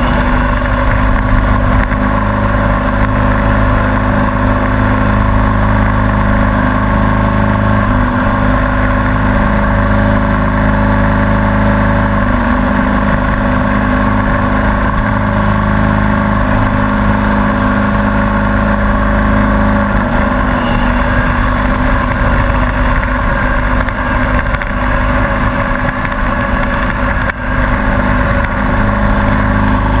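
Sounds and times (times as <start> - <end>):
riding lawn mower engine: 0.0 - 30.0.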